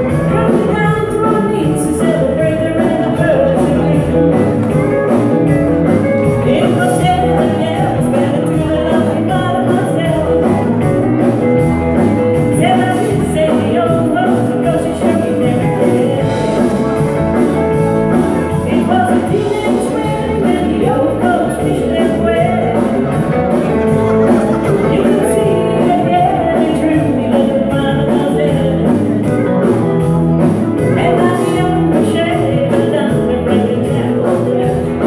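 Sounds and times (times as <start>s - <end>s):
woman singing: 0.0s - 4.5s, 6.4s - 10.8s, 12.5s - 16.8s, 18.5s - 23.1s, 24.1s - 29.2s, 30.8s - 35.0s
live country-rock band: 0.0s - 35.0s.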